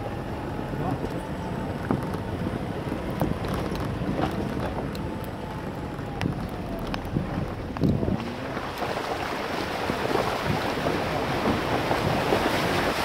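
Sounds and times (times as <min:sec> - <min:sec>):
off-road vehicle engine rumble: 0:00.0 - 0:13.0
stones under tyres: 0:01.1 - 0:13.0
wind noise on microphone: 0:01.6 - 0:13.0
knocks and rattles of body: 0:01.8 - 0:04.9.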